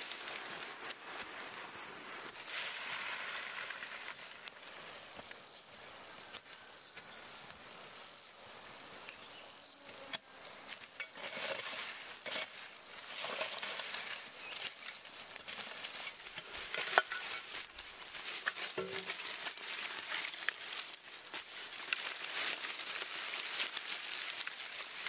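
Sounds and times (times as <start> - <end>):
rustling and light knocks: 11.0 - 20.6.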